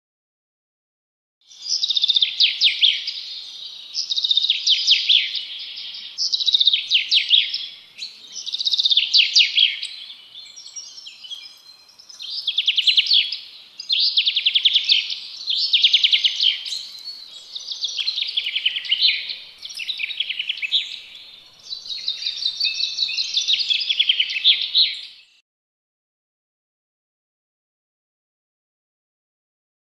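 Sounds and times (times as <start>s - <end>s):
songbird twittering: 1.5s - 25.4s.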